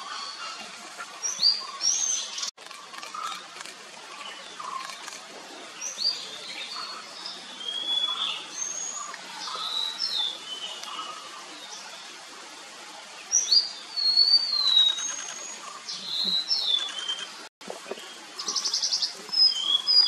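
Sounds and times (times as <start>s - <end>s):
bird whistling song: 13.4s - 15.5s.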